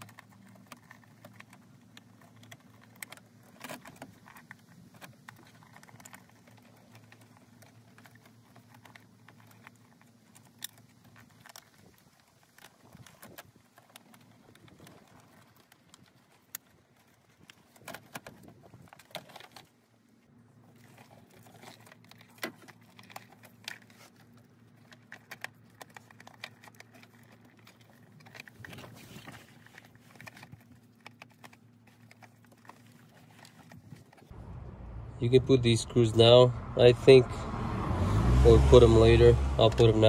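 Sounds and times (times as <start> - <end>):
plastic clicks and rattles: 0.0 - 19.8, 20.7 - 34.3.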